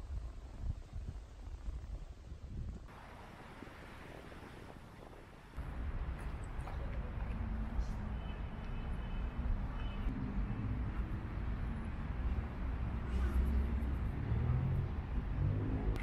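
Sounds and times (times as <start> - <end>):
road traffic rumble: 5.6 - 16.0.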